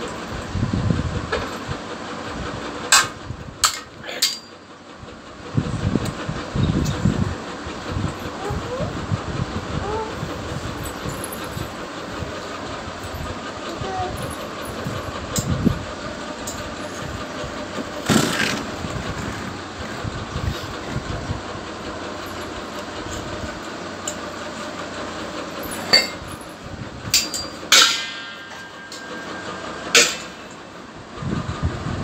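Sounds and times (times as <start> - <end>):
steady mechanical hum: 0.0 - 32.0
ringing metallic clang: 27.2 - 29.4.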